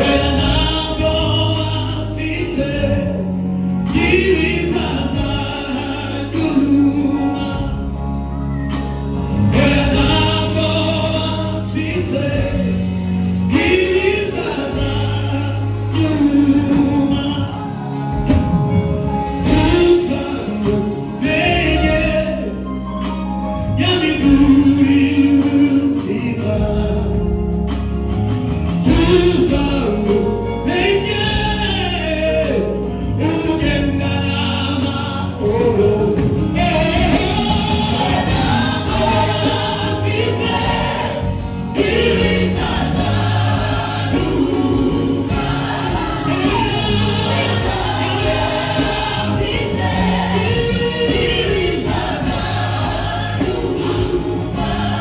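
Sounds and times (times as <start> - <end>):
choir singing: 0.0 - 7.9, 9.2 - 22.7, 33.2 - 55.0
band playing low notes: 0.0 - 55.0.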